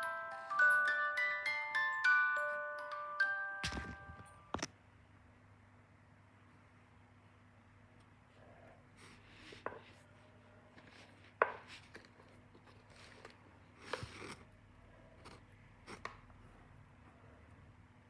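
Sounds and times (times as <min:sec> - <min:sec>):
faint handling rustle: 0:08.9 - 0:16.2.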